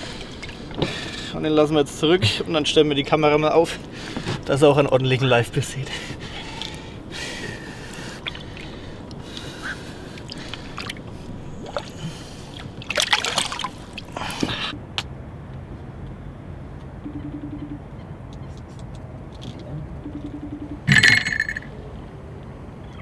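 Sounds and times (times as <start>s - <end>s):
water splashing against boat: 6.4s - 14.7s.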